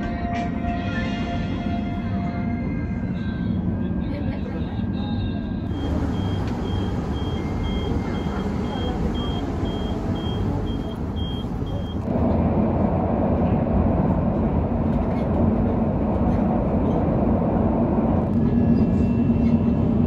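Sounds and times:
electric train rumble and hum: 0.0s - 20.0s
high electronic beep: 5.7s - 12.1s.

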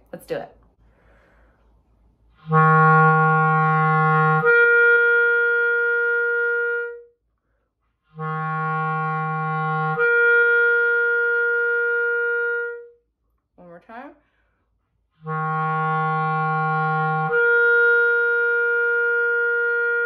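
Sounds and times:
clarinet playing held notes: 2.4s - 7.2s, 8.1s - 13.0s, 15.2s - 20.0s.

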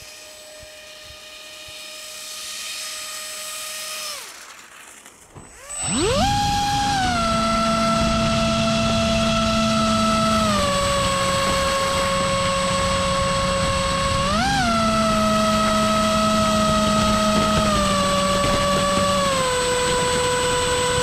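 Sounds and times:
ducted propeller motor whining: 0.0s - 21.0s.

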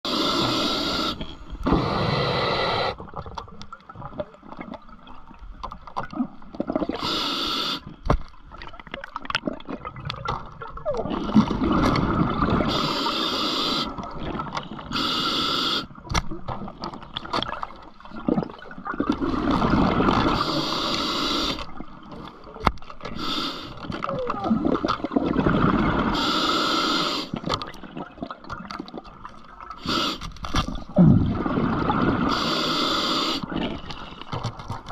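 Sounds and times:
regulator hissing inhalations: 0.1s - 3.0s, 7.0s - 7.9s, 12.7s - 14.0s, 14.9s - 15.9s, 20.4s - 21.7s, 23.2s - 23.8s, 26.1s - 27.4s, 29.8s - 30.3s, 32.3s - 33.5s
bubbling exhalations: 23.2s - 28.9s, 29.8s - 34.3s.

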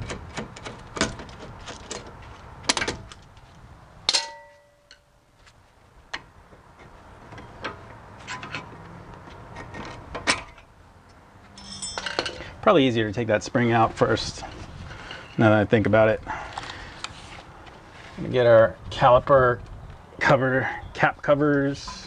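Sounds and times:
loud metallic clank: 4.1s - 5.0s
metal tools clanking on caliper: 11.5s - 12.6s.

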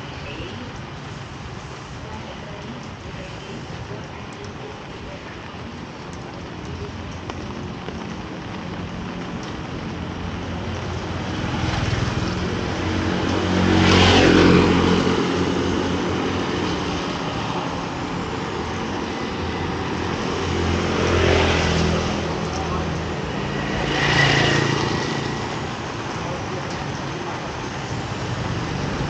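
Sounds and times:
tyre hiss on wet road: 0.0s - 5.5s
rain on wet street: 0.0s - 29.0s
motor scooters passing: 7.2s - 29.0s.

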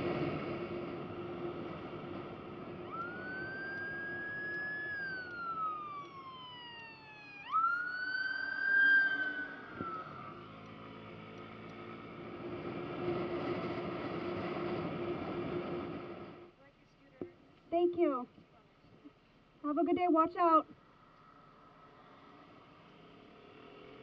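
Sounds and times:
ambulance siren wailing: 2.2s - 11.7s.

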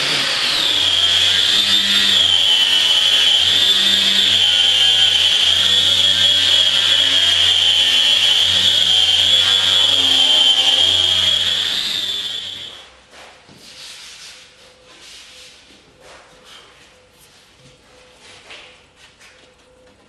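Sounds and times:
electric power sander whining: 0.0s - 12.8s.

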